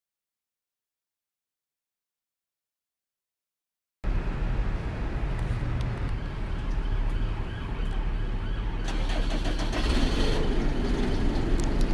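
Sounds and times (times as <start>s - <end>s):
bus diesel engine idling: 4.1s - 11.9s.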